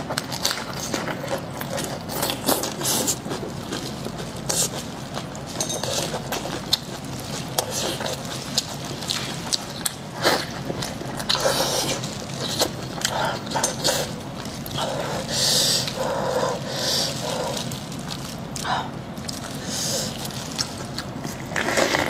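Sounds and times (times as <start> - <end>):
plastic gloves crinkling: 0.2 - 22.0
lettuce leaves rustling: 19.2 - 22.0.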